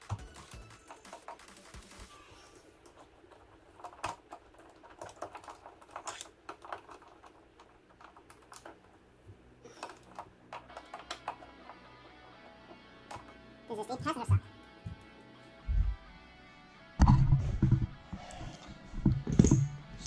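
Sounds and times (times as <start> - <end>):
small fasteners clicking and tapping: 2.8 - 9.0.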